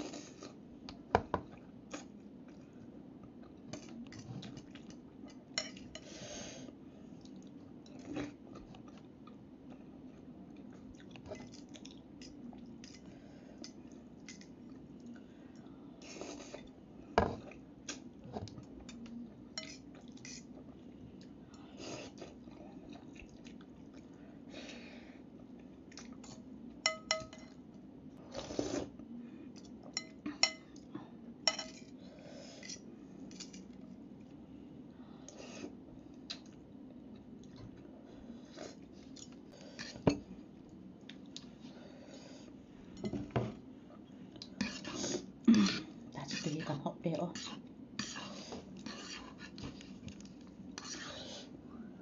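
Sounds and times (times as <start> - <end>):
fork clinking on ceramic bowl: 26.9 - 27.6.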